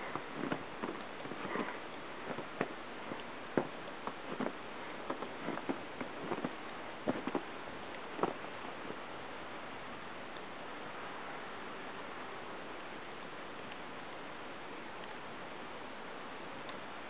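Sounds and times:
footsteps crunching in snow: 0.0 - 9.0
steady hiss: 0.0 - 17.0.

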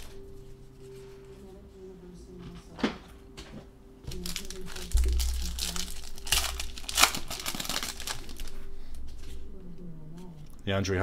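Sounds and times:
foil wrapper tearing and crinkling: 4.1 - 9.4
low handling rumble: 4.1 - 10.7.

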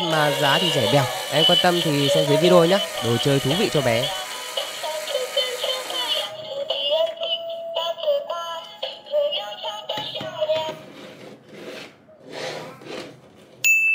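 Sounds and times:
thin electronic melody: 0.0 - 5.3.

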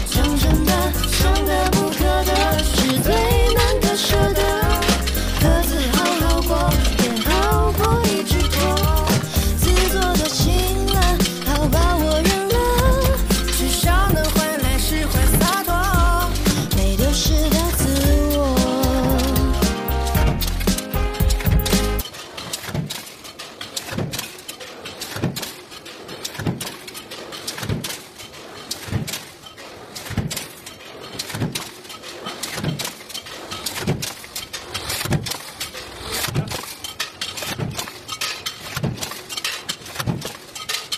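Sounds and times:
stamping press ram thudding: 0.0 - 22.0
metallic clatter and clicks: 0.0 - 40.9.

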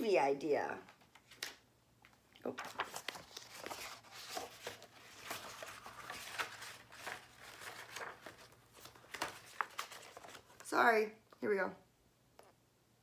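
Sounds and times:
paper pages rustling and flipping: 0.9 - 10.7.

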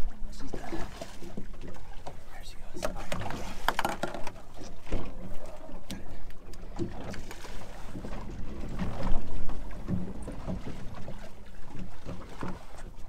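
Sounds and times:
water lapping against boat hull: 0.0 - 13.0.

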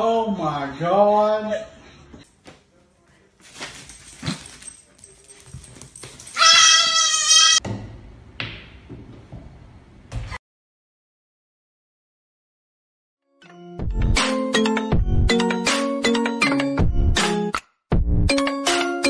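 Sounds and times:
baby goat bleating: 6.4 - 7.6.

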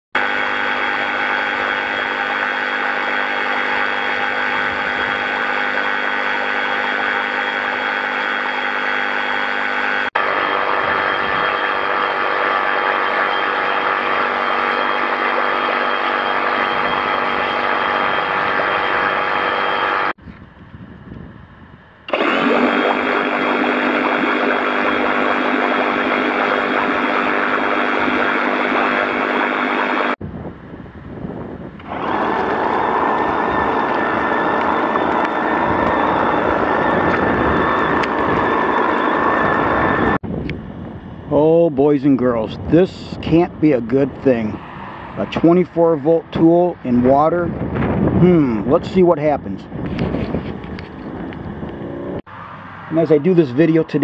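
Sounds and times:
reciprocating saw motor: 0.2 - 20.2, 22.0 - 30.2, 31.7 - 40.2
water splashing: 22.1 - 28.2.

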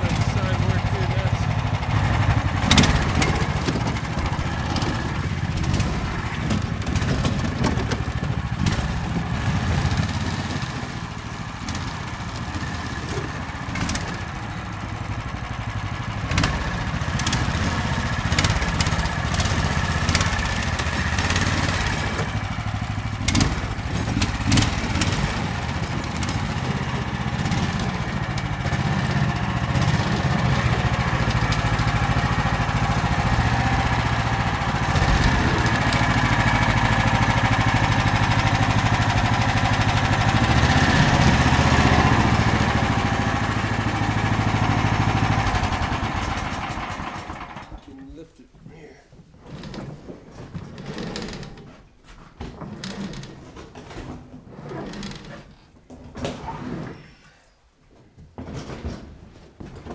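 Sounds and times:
sharp knocks and clatters: 0.0 - 47.9, 57.9 - 59.9
small engine running: 0.0 - 47.9.

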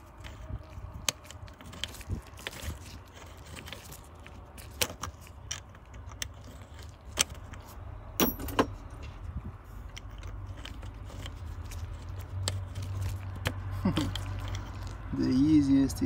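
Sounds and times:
metallic clicks and knocks: 8.2 - 14.8.

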